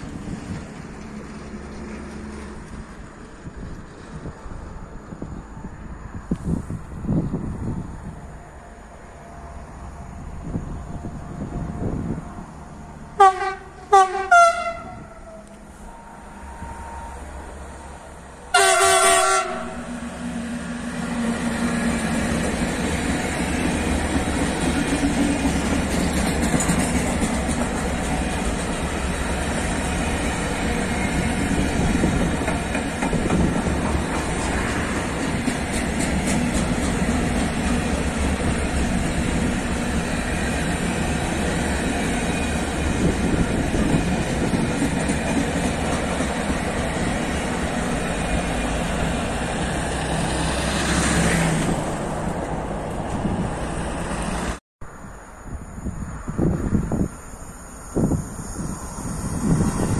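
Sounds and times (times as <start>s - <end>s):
freight train rumbling past: 0.0s - 59.9s
train wheel noise on rails: 0.0s - 59.9s
locomotive horn blast: 13.2s - 17.6s, 18.5s - 20.2s.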